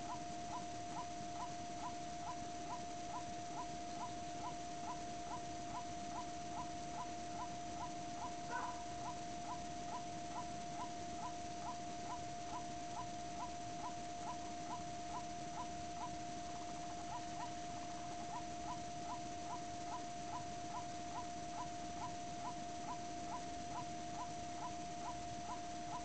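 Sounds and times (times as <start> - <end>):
steady high-pitched tone: 0.0 - 26.0
waterhen calling: 8.2 - 8.9.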